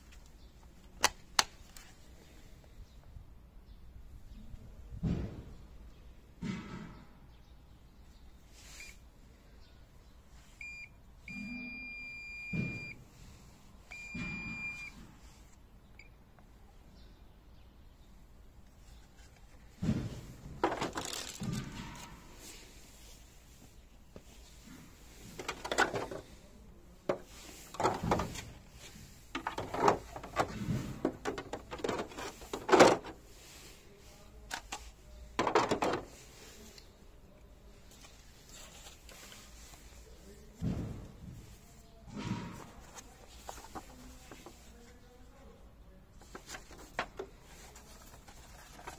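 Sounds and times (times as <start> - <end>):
wall scanner beeping: 10.6 - 13.0, 13.9 - 15.0
plastic knocks and scrapes: 18.8 - 22.5, 24.2 - 26.4, 27.0 - 33.2, 40.5 - 44.8, 46.2 - 48.9.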